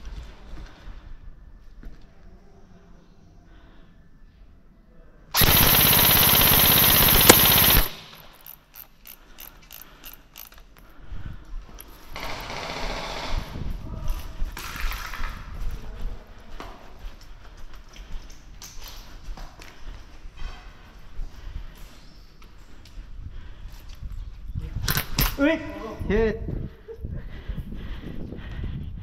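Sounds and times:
airsoft rifle full-auto burst: 5.4s - 8.6s.

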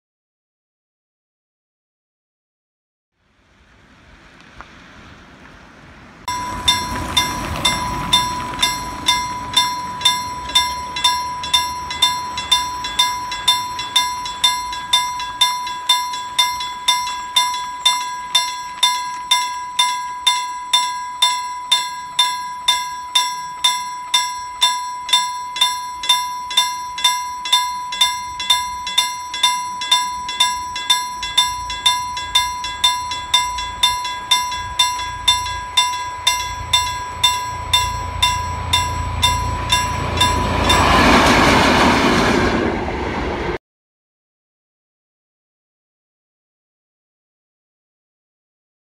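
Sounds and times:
level crossing warning bell: 6.3s - 42.5s
steady high tone: 6.3s - 43.4s.

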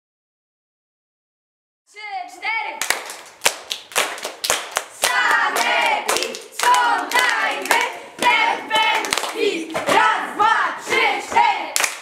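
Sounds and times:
children clapping in rhythm: 2.8s - 12.0s
children singing: 5.0s - 11.8s.

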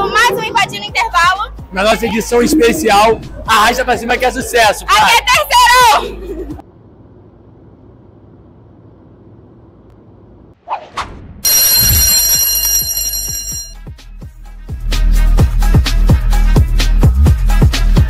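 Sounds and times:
short rising whoosh: 2.1s - 3.6s
electric bell ringing: 11.4s - 13.8s.

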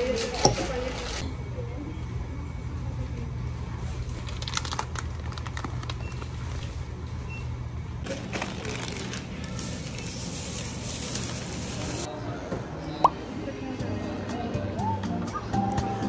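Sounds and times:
steady low hum: 0.0s - 8.3s
plastic snack bags crinkling: 4.0s - 6.7s, 8.0s - 12.1s.

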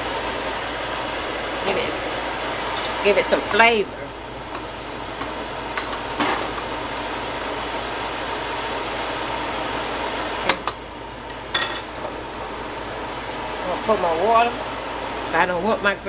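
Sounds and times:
food sizzling in frying pan: 0.0s - 16.0s.

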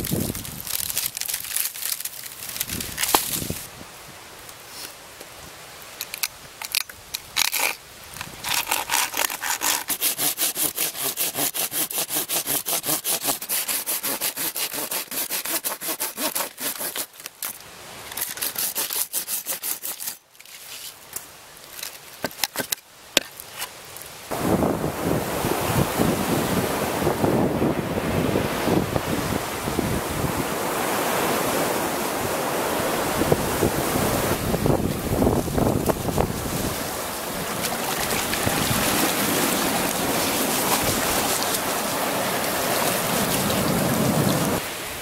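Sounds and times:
hand saw cutting wood: 8.4s - 17.3s, 18.2s - 20.2s
saw scraping: 8.4s - 17.3s, 18.1s - 21.0s.

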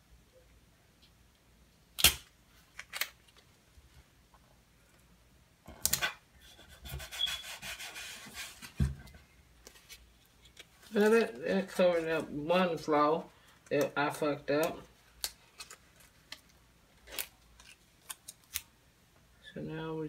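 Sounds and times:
palm rubbing sticker: 6.5s - 8.7s.

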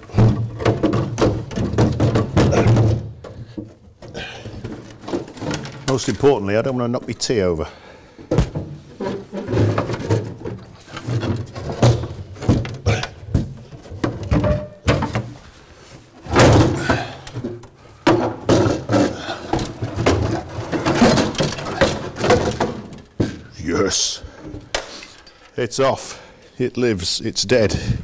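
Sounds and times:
metal seat box knocks and clunks: 0.0s - 6.0s, 8.3s - 15.4s.

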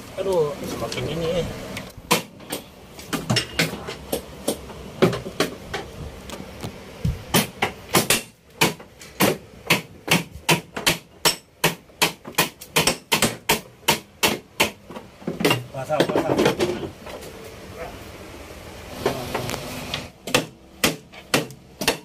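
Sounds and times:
hammer striking metal: 7.3s - 14.8s, 20.2s - 22.0s.

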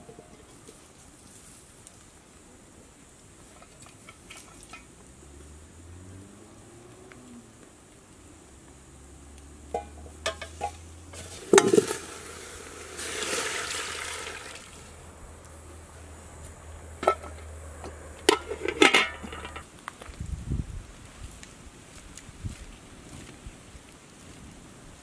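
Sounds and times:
metal pot and lid clanking: 9.7s - 13.9s, 17.0s - 19.6s
water pouring into pot: 11.2s - 14.9s.

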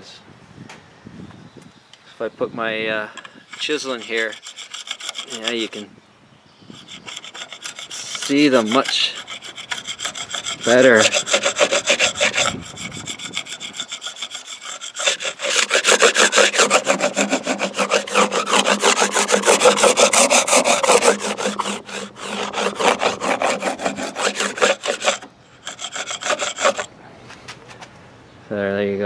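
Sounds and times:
chisel scraping boat hull: 3.5s - 5.9s, 6.8s - 26.9s.

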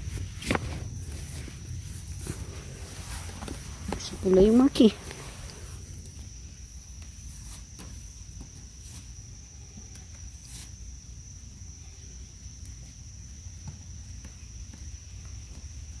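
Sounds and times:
tomato plants rustling: 0.0s - 9.6s
high-pitched insect trill: 0.0s - 16.0s.

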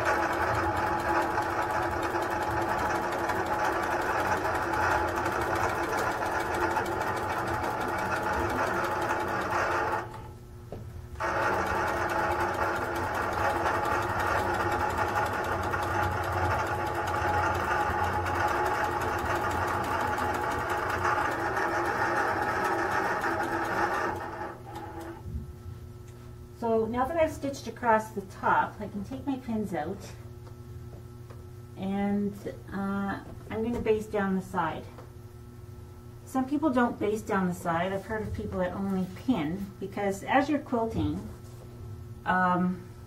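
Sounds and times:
quilting machine stitching: 0.0s - 10.3s, 11.2s - 25.2s.

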